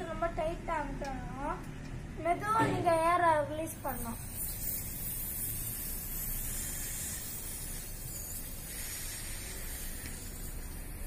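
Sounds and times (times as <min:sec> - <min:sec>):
air hissing out of balloon: 0:03.8 - 0:11.0.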